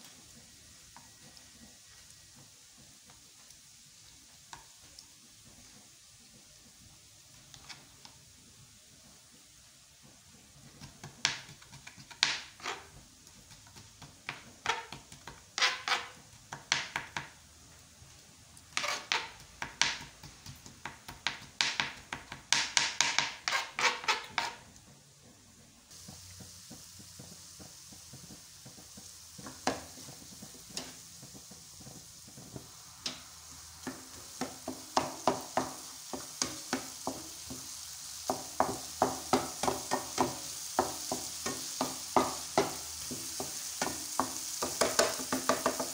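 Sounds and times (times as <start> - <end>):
tomatoes sizzling in a pan: 0.0 - 45.9
wooden spoon scraping a pan: 10.1 - 16.5, 18.6 - 20.8, 22.6 - 25.5, 26.7 - 45.9
knife chopping on cutting board: 33.8 - 37.3, 38.3 - 45.9.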